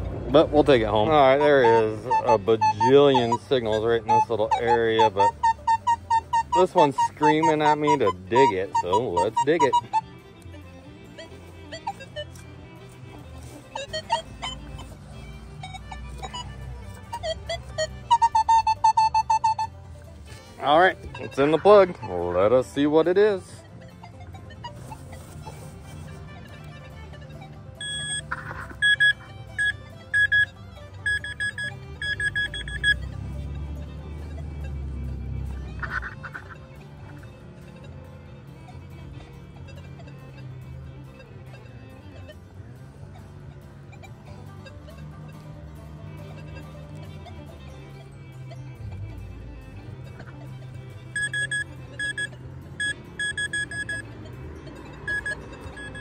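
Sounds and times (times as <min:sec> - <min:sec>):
pinpointer short beeps: 0:27.8 - 0:33.0, 0:51.2 - 0:54.1, 0:55.0 - 0:56.0.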